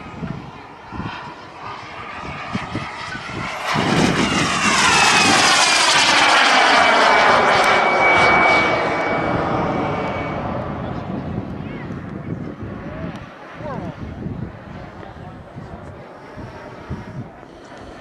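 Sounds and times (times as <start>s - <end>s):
jet turbine engine running: 0.0s - 18.0s
whining tones: 2.8s - 11.3s.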